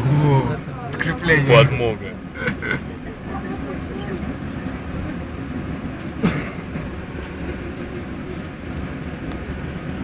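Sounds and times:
trolleybus rumble: 0.0 - 10.0.

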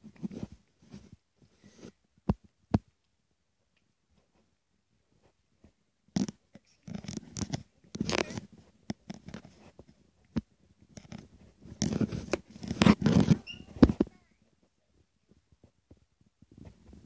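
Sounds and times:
phone microphone handling noise: 6.1 - 14.2.

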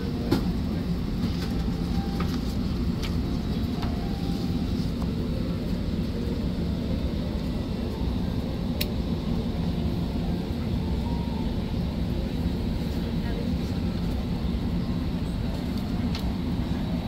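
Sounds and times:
aircraft cabin rumble: 0.0 - 17.0.

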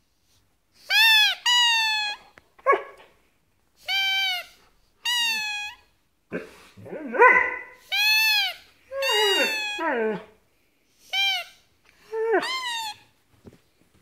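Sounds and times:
dog whining calls: 3.8 - 10.4, 11.1 - 13.1.

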